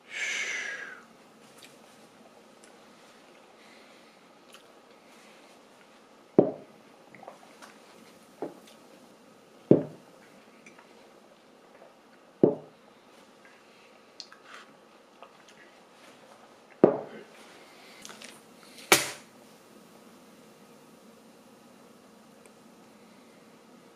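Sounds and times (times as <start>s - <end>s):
glass thudding on cloth table: 6.4s - 6.6s, 9.7s - 10.0s, 12.4s - 12.7s, 16.8s - 17.1s
glass knock: 9.7s - 10.0s, 12.4s - 12.7s
faint handling sounds: 13.0s - 18.9s.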